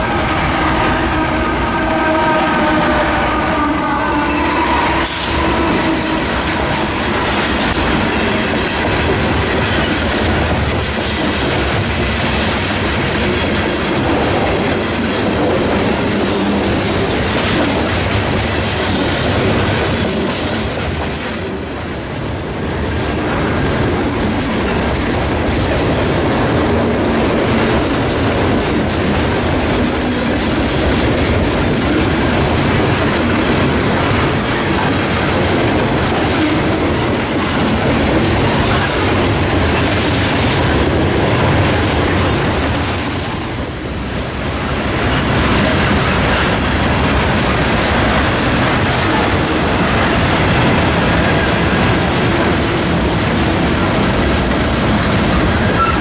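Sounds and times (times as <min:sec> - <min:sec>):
diesel locomotive passing: 0:00.0 - 0:56.0
train wheels on rail: 0:00.0 - 0:56.0.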